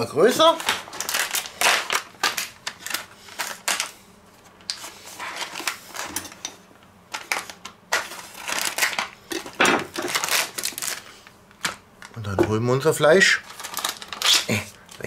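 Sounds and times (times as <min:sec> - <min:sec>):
plastic packaging crinkling: 0:00.2 - 0:04.0, 0:04.6 - 0:06.4, 0:07.1 - 0:15.0
knife slitting plastic film: 0:07.3 - 0:09.1, 0:09.9 - 0:11.0, 0:13.5 - 0:14.5.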